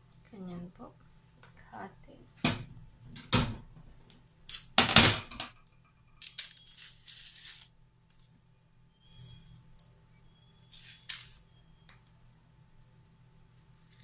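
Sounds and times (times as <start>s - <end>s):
banana peel tearing and rustling: 6.2s - 8.3s, 10.6s - 11.6s.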